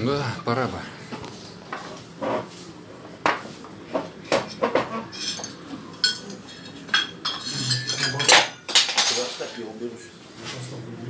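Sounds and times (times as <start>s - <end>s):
dishes and cutlery clinking: 3.3s - 9.7s.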